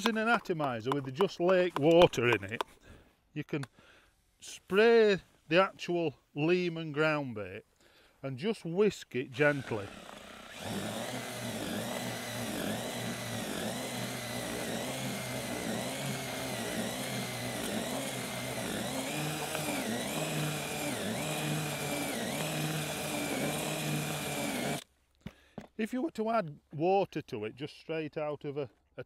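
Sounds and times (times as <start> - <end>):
cordless drill motor whine: 9.4 - 24.8
whisk dragging through mix: 9.4 - 24.8.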